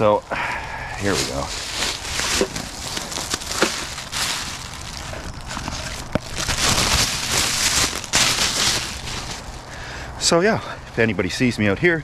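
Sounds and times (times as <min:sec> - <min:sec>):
plastic garbage bag crinkling: 0:01.0 - 0:09.8.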